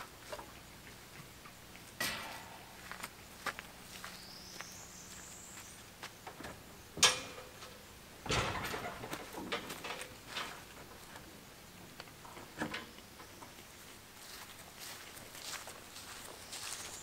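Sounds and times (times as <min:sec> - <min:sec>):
knocks and rattles: 0:06.2 - 0:11.3.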